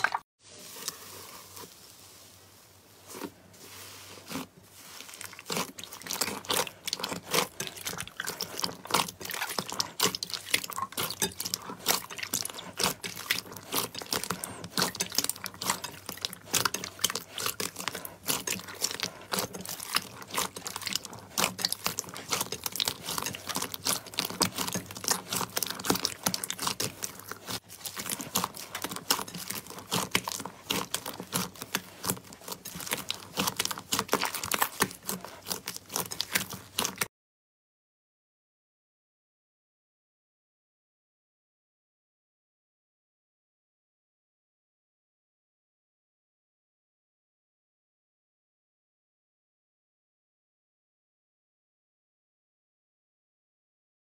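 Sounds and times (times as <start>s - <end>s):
slime squelching: 0.0s - 37.1s.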